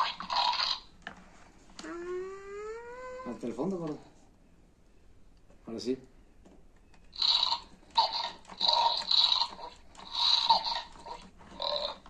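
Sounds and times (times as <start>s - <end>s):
toy crunchy chomping sounds: 0.0s - 0.9s, 7.1s - 12.0s.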